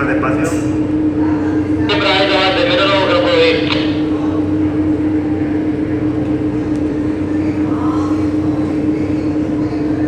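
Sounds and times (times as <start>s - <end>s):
boat engines humming: 1.6s - 6.5s.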